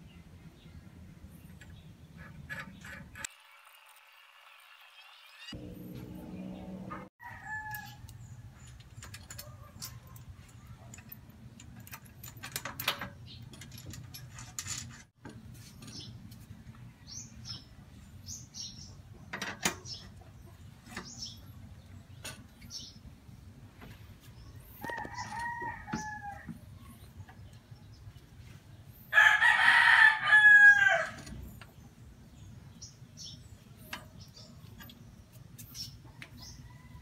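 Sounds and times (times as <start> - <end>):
chickens clucking and crowing: 24.6 - 27.5.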